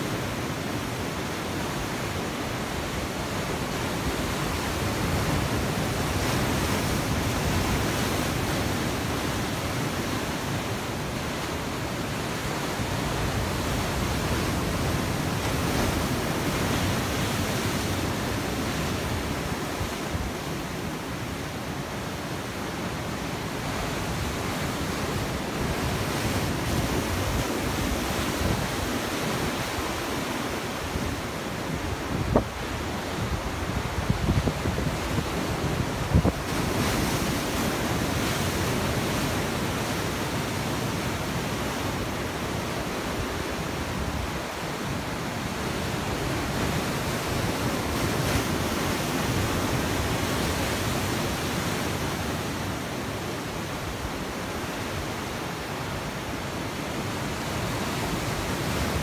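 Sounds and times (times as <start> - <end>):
ocean waves breaking on rocks: 0.0 - 59.0
wind rumbling on microphone: 23.8 - 39.5.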